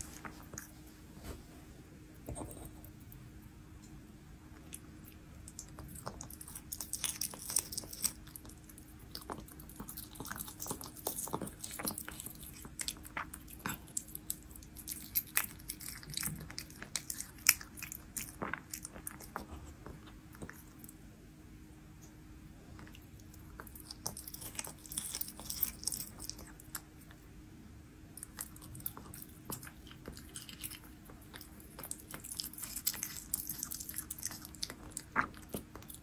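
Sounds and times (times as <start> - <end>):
cat chewing meat: 4.5 - 20.9, 22.6 - 27.3, 28.2 - 36.0.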